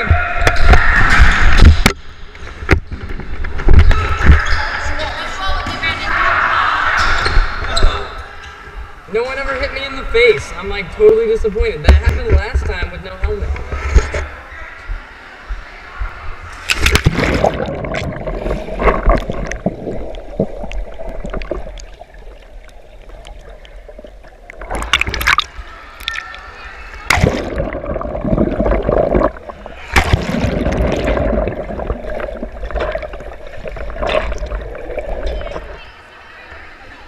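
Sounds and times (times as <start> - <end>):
pool water splashing: 16.5 - 37.0
muffled underwater bubbling: 16.9 - 26.4, 27.1 - 35.8.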